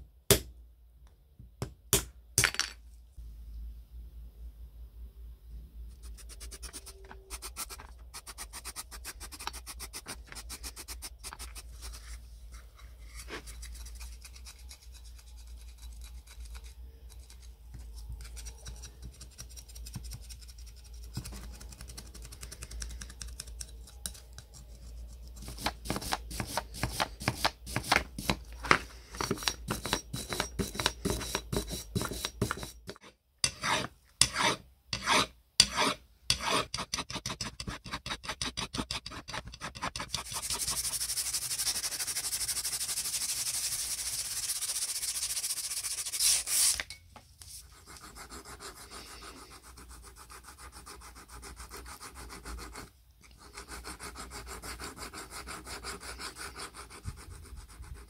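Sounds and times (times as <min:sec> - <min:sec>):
brush scrubbing metal: 0:39.2 - 0:46.8.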